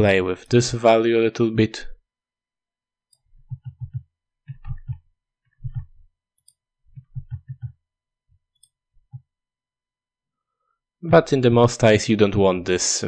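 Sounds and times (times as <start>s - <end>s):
computer mouse clicking: 3.1s - 5.0s, 5.7s - 7.8s.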